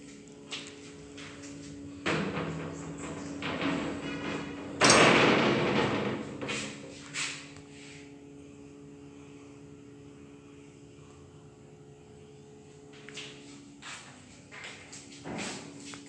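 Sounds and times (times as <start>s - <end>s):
low mechanical hum: 0.0s - 16.0s
soft knocks: 1.0s - 7.0s.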